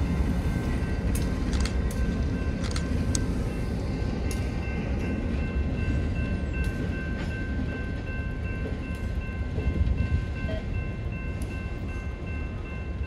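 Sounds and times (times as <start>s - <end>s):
crossing bell ringing: 0.0s - 13.0s
diesel locomotive rumbling: 0.0s - 13.0s
train wheel clicks: 0.9s - 3.3s, 4.2s - 5.1s.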